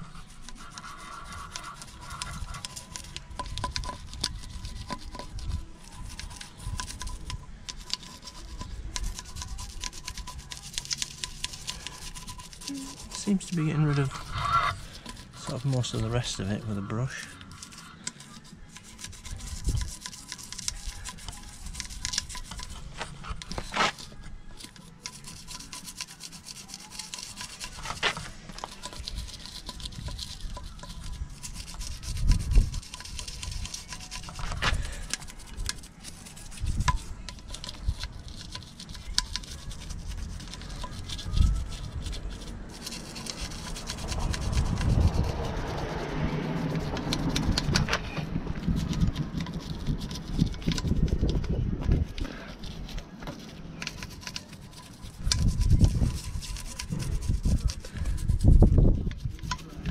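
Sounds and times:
toothbrush scrubbing wet wheel: 0.0 - 59.9.

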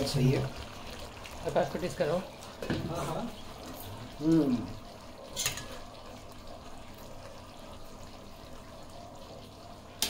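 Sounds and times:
gravy simmering and bubbling: 0.0 - 10.0.

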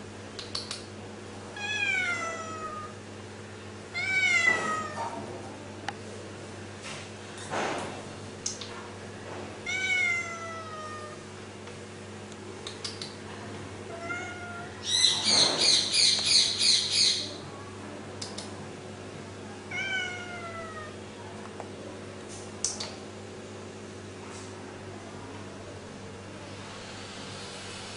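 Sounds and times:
cat meowing: 1.6 - 3.0, 3.9 - 5.1, 9.7 - 11.2, 14.0 - 14.9, 19.7 - 21.0.

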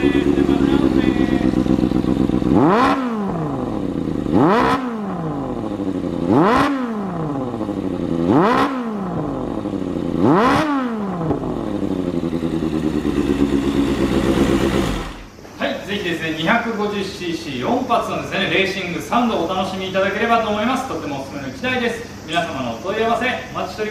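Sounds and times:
motorcycle engine revving and idling: 0.0 - 15.4.

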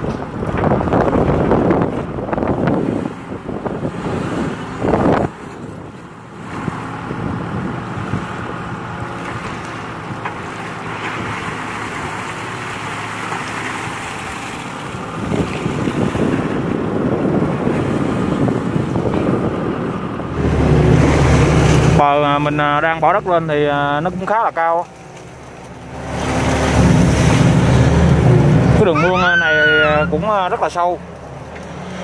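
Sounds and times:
wind gusts on microphone: 0.0 - 13.2, 13.8 - 24.4.

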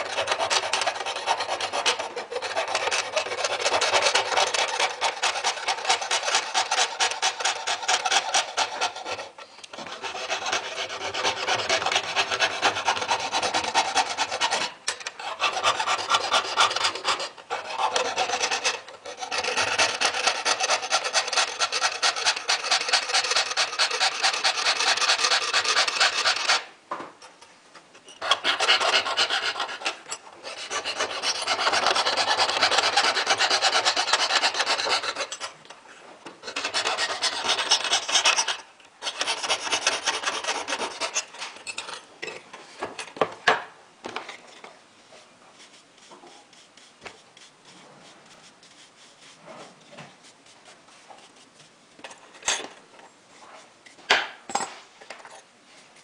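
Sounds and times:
saw rasping through metal: 0.0 - 26.7, 28.2 - 35.5, 36.4 - 41.4.

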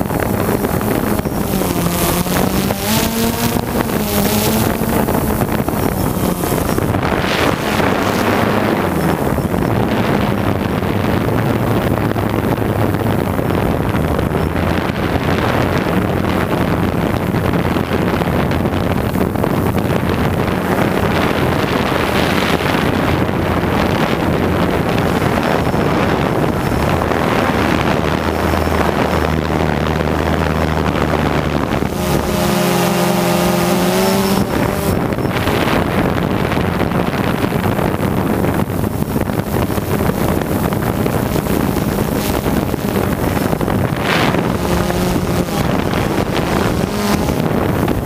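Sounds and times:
motors and propellers humming: 0.0 - 48.0
wind rushing over microphone: 0.0 - 48.0.

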